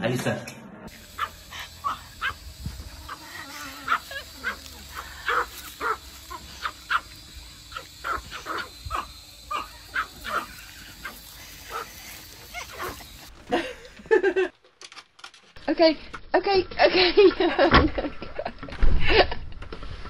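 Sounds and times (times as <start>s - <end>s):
small dogs yapping: 0.9s - 13.3s.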